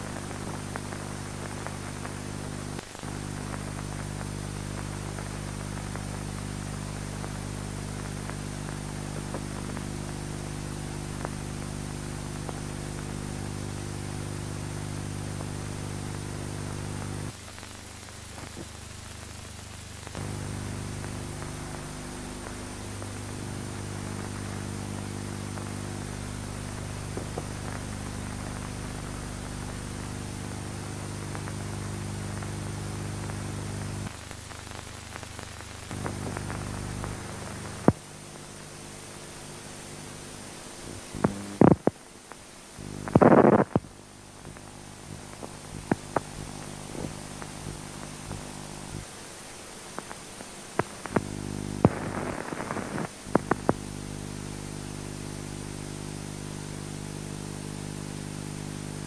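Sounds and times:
electrical hum: 0:00.0 - 0:59.0
recording hiss: 0:00.0 - 0:59.0
clicks and crackles: 0:17.2 - 0:29.8, 0:33.2 - 0:38.1, 0:41.2 - 0:49.1, 0:49.9 - 0:53.9.

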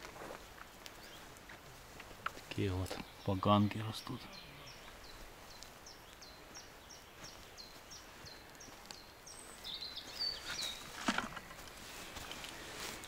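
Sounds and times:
footstep crunch on forest floor: 0:00.0 - 0:13.0
bird twittering: 0:03.0 - 0:11.0.

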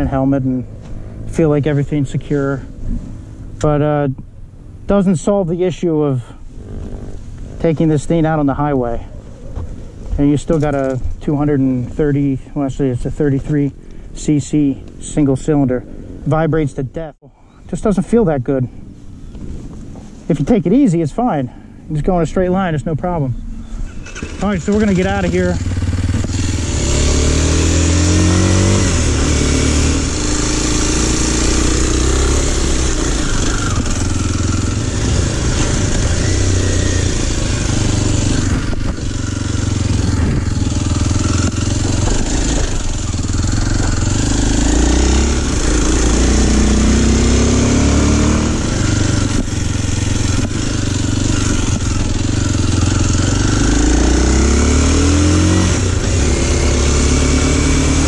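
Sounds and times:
motorcycle engine through gears: 0:06.5 - 0:08.8, 0:09.4 - 0:12.3, 0:23.1 - 0:58.0.

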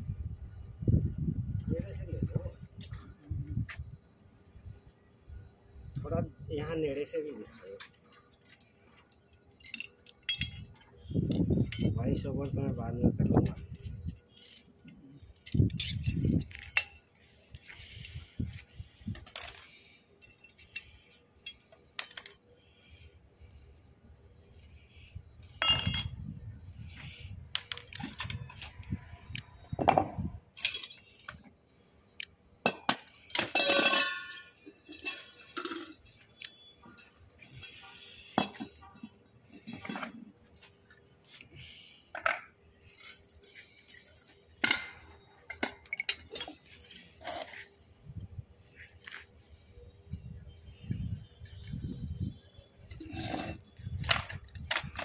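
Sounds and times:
metal parts and tools clinking: 0:07.1 - 0:23.2, 0:25.4 - 0:31.5, 0:32.2 - 0:41.4, 0:42.1 - 0:47.7, 0:52.8 - 0:55.0
ringing metal clang: 0:25.6 - 0:26.2.

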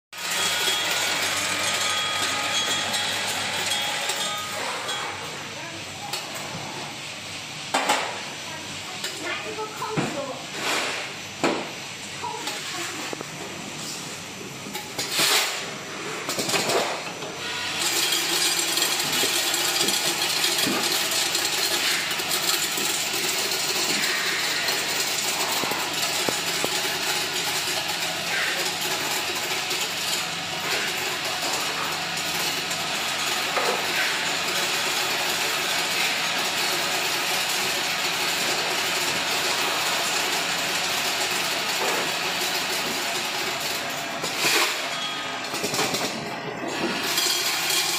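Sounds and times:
counting machine rattling: 0:00.2 - 0:04.6, 0:17.8 - 0:43.7, 0:46.9 - 0:47.9.

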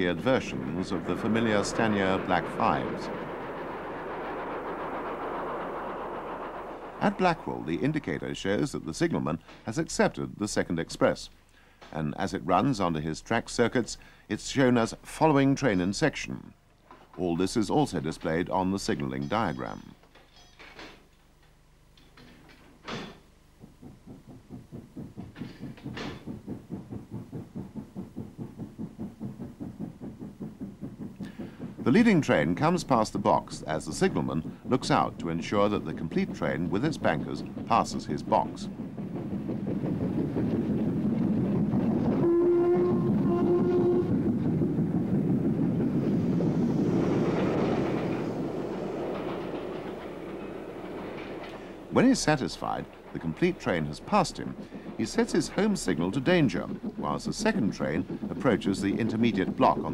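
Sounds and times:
steam locomotive chuffing: 0:00.0 - 0:11.0, 0:23.4 - 0:59.9
sharp knocks: 0:22.2 - 0:44.6.

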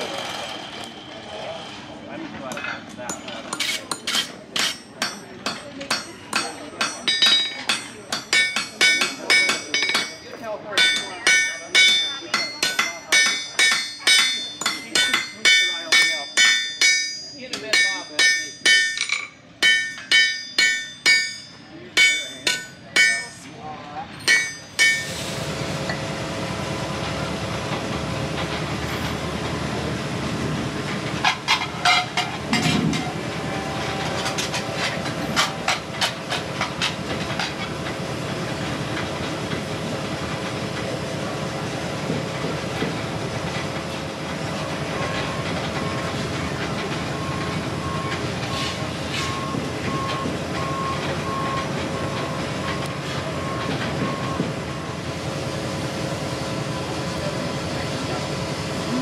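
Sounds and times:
metallic knocks and clanks: 0:02.5 - 0:23.6, 0:24.2 - 0:25.2, 0:31.2 - 0:33.2
hammer ringing on anvil: 0:02.5 - 0:25.3.

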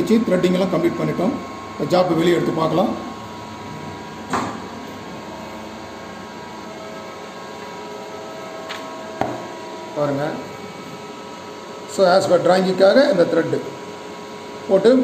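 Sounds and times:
steady machine hum: 0:00.0 - 0:15.0
knock of handling parts: 0:09.2 - 0:09.5.

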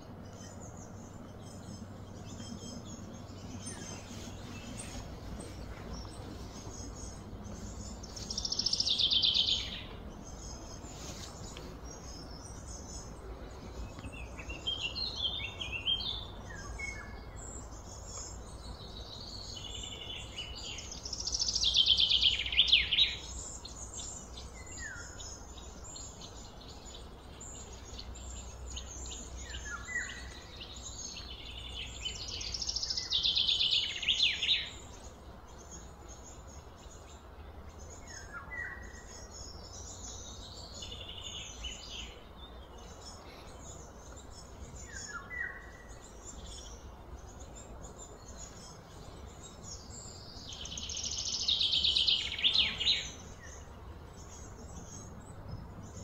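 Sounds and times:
bird chirps: 0:00.0 - 0:56.0
songbird trilling: 0:00.2 - 0:11.0, 0:37.8 - 0:56.0.

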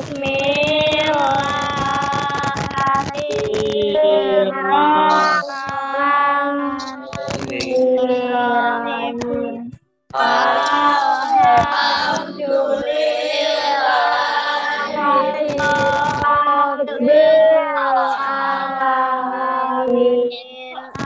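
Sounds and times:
child singing a prayer: 0:00.0 - 0:21.0.

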